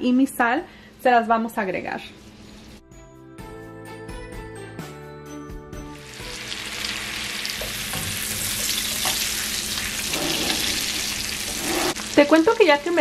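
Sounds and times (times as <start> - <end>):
potatoes sizzling in a pan: 6.0 - 13.0
spatula scraping a pan: 8.7 - 12.0.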